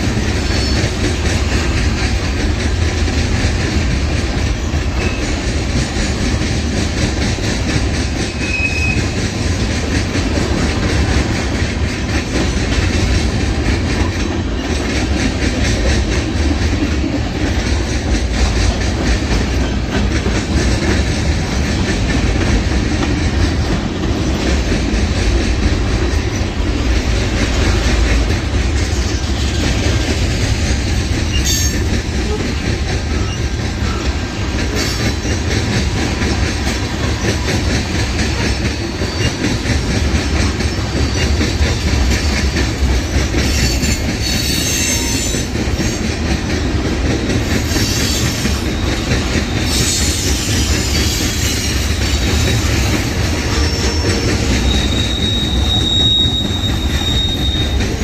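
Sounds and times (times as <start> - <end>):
steel wheels rumbling on rail: 0.0 - 58.0
wheels clacking over rail joints: 0.0 - 58.0
faint wheel squeal: 53.5 - 57.9.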